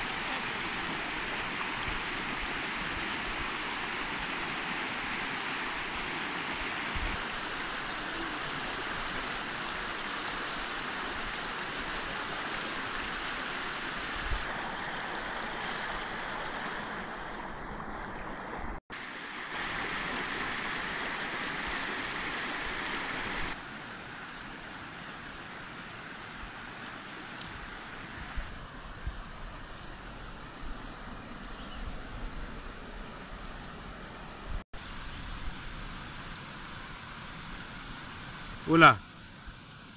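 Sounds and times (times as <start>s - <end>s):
river rushing over rocks: 0.0s - 30.4s.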